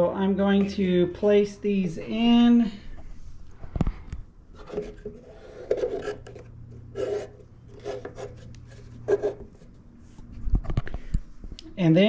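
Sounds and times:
plastic strips scraping: 4.6s - 9.7s.

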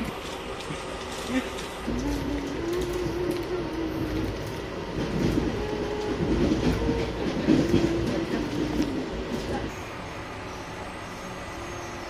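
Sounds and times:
train rumble: 0.0s - 12.0s
faint wavering tone: 9.7s - 12.0s.

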